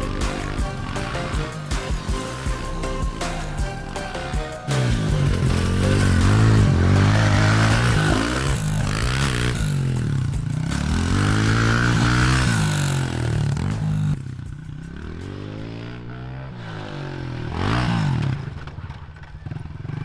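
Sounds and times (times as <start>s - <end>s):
pit bike engine revving: 0.0s - 20.0s.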